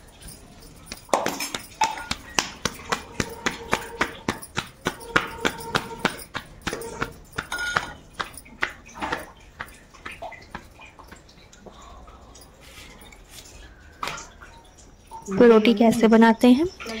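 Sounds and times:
hands patting dough: 0.3s - 11.6s.

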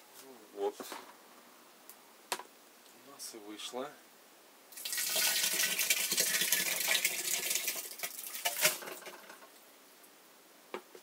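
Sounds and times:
grapes and juice splashing: 4.8s - 9.1s.

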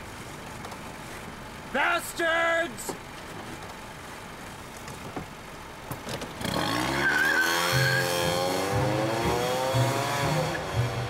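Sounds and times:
car engine revving: 6.2s - 11.0s
tyre squeal: 6.5s - 9.4s
music with pulsing bass: 7.7s - 11.0s.

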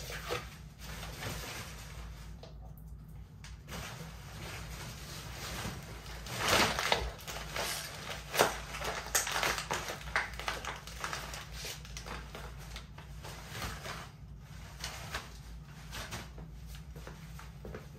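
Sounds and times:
plastic bag crinkling: 3.5s - 16.9s.

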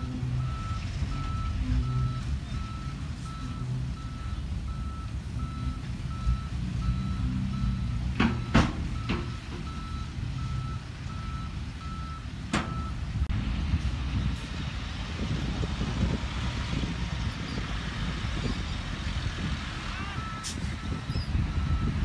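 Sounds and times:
reversing alarm beeping: 0.0s - 13.0s, 20.2s - 22.0s
dump trucks rumbling: 0.0s - 22.0s.

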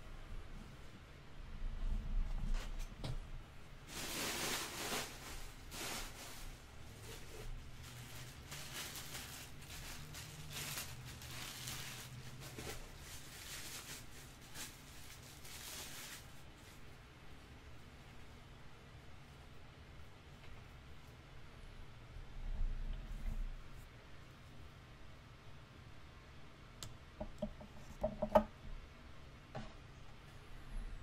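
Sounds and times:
plastic bag and foam rustling: 3.7s - 17.2s.

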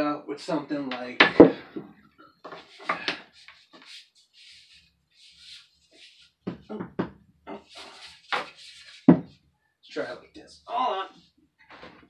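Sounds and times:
soft rustling: 1.7s - 6.8s, 7.5s - 9.4s.

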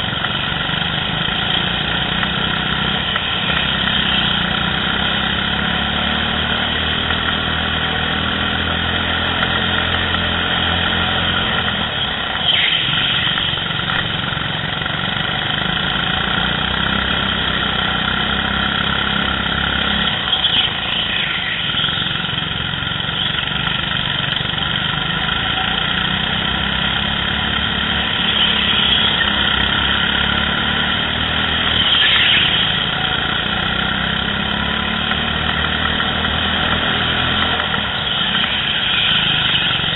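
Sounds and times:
go-kart engines running: 0.0s - 39.9s
high squeals falling in pitch: 38.3s - 39.9s.

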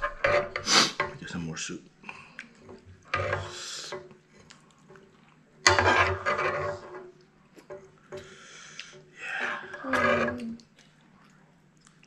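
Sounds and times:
metal spoon scraping a frying pan: 0.0s - 1.3s, 2.6s - 4.1s, 5.6s - 7.2s, 9.7s - 10.4s.

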